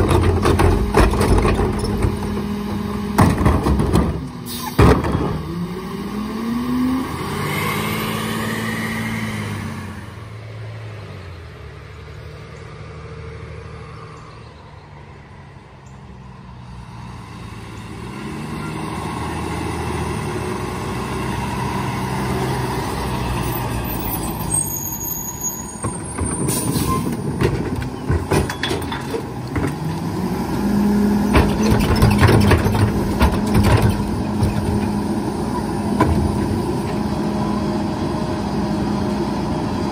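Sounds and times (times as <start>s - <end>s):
trash cart rattling and banging: 0.0s - 5.4s, 25.8s - 30.2s, 31.2s - 35.1s
diesel truck engine revving: 0.0s - 14.0s, 16.4s - 28.0s, 29.2s - 39.9s.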